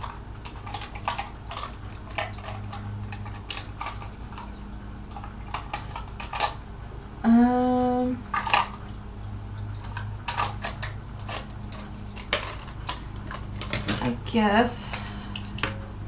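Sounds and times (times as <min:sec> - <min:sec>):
makeup brushes clicking and rattling: 0:09.8 - 0:15.8.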